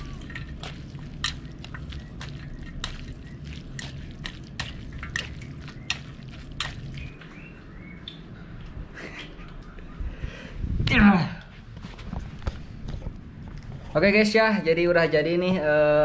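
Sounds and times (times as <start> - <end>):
wet squelching of noodles: 0.0 - 8.2
steady low hum: 0.0 - 14.2.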